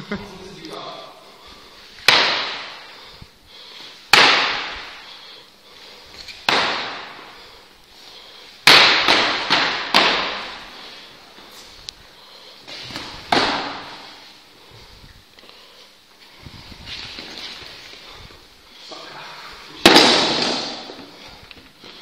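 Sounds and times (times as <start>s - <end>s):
plastic swords clacking: 8.6s - 10.6s, 19.8s - 21.1s.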